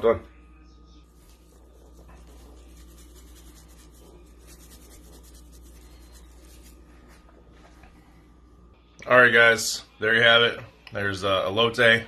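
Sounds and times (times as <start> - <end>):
low steady hum: 0.0 - 12.0
spice shaker rattling: 1.4 - 6.8.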